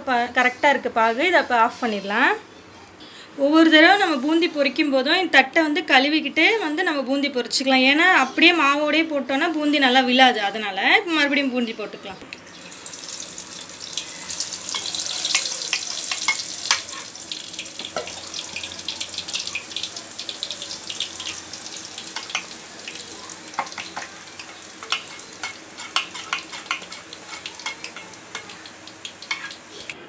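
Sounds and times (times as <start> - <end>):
batter frying in hot oil: 12.4 - 30.0.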